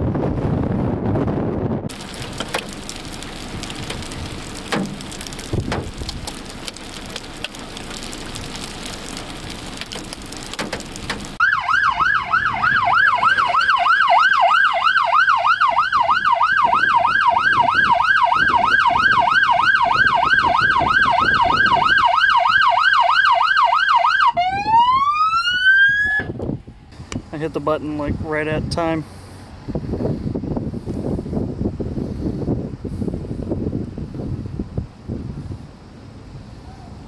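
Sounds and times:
rain and wind: 0.0s - 37.0s
police siren yelping: 11.4s - 26.3s.

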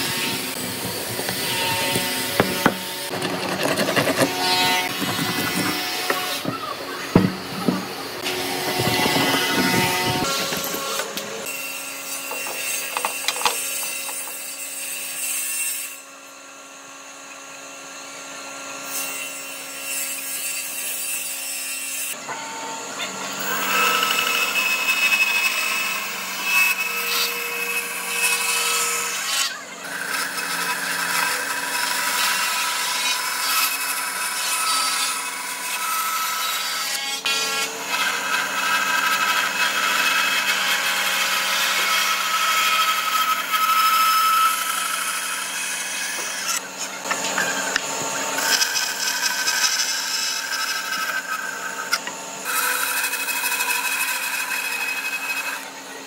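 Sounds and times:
band saw cutting wood: 0.0s - 56.0s.

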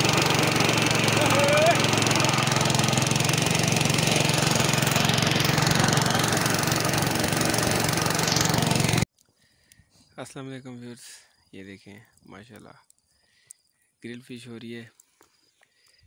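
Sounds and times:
boat engine running: 0.0s - 9.0s.

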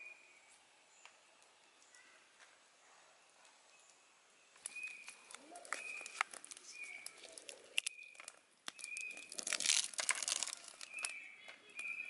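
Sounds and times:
leaves and pods crinkling: 4.6s - 12.0s.

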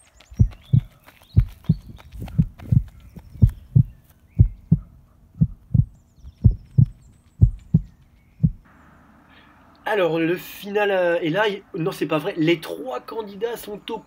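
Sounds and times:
heartbeat thumps: 0.4s - 8.7s.

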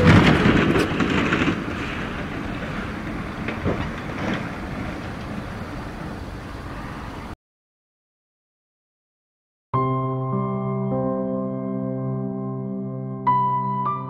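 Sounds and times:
truck rumble: 0.0s - 7.4s.

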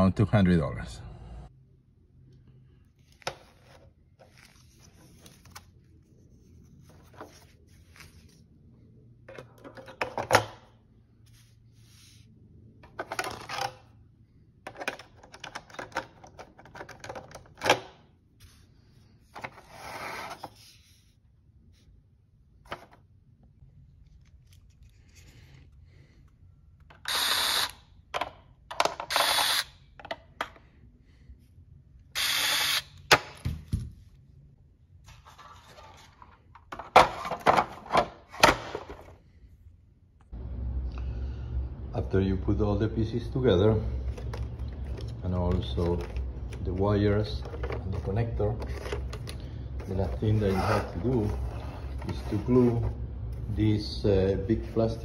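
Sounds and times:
plastic parts clicking and rustling: 14.6s - 17.9s, 44.1s - 52.3s
power screwdriver driving screws: 27.1s - 27.8s, 29.1s - 29.7s, 32.2s - 32.9s.

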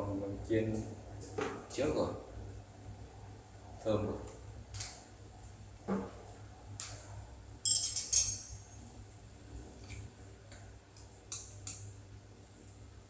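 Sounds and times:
utensil clinking against pot: 7.6s - 8.6s.

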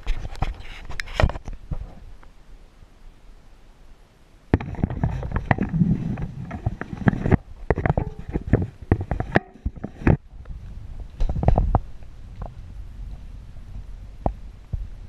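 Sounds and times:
clothing rubbing against microphone: 0.0s - 2.2s, 4.6s - 15.0s
low rumble: 9.5s - 15.0s.

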